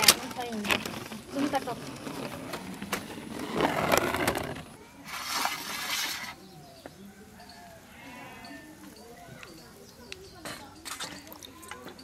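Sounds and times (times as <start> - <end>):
faint bird chirps: 6.1 - 12.0
steel plate and clay bowls clinking: 8.3 - 12.0.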